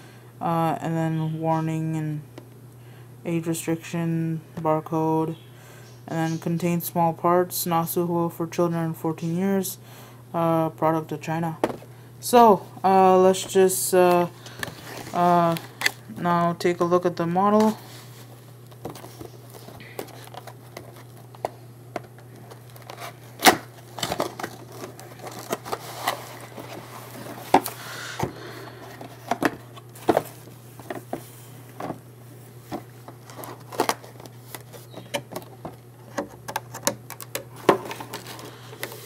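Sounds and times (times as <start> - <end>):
steady low hum: 0.0 - 39.0
cardboard and plastic clicks and crinkles: 18.6 - 32.0, 32.7 - 39.0.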